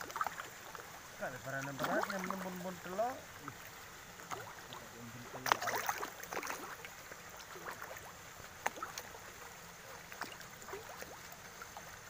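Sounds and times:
fish splashing at water surface: 0.0s - 12.0s.

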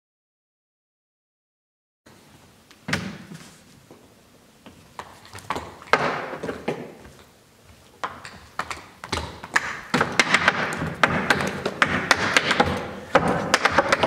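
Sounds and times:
hard shoes tapping on wooden board: 5.0s - 7.2s, 8.0s - 14.0s.

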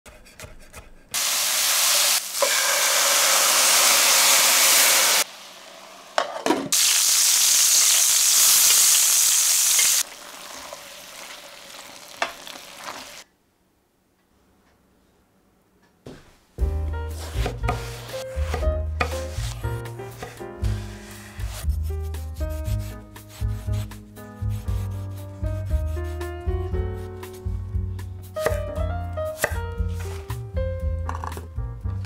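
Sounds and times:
food sizzling in a pan: 1.2s - 13.2s.

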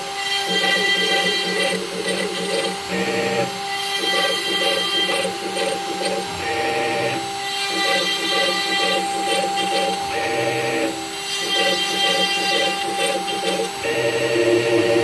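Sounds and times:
milling spindle whining: 0.0s - 15.0s.

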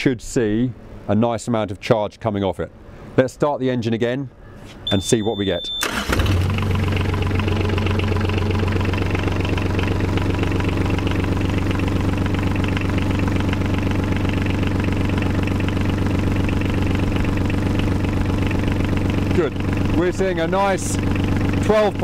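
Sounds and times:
diesel engine idling: 5.8s - 22.0s.

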